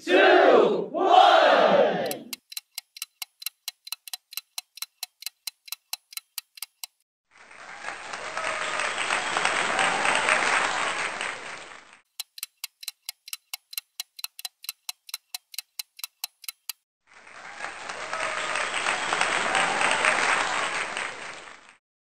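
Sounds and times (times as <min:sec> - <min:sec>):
countdown timer ticking: 0:02.0 - 0:07.0, 0:12.1 - 0:16.8
recorded applause: 0:07.3 - 0:12.1, 0:17.0 - 0:21.8.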